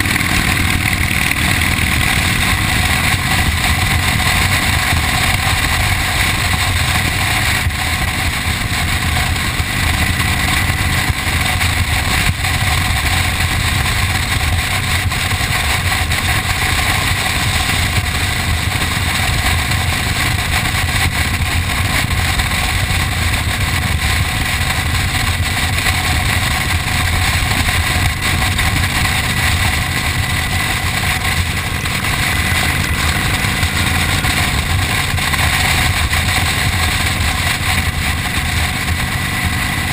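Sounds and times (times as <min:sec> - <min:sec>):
motorcycle engine running: 0:00.0 - 0:39.9
wind rush over microphone: 0:00.0 - 0:39.9.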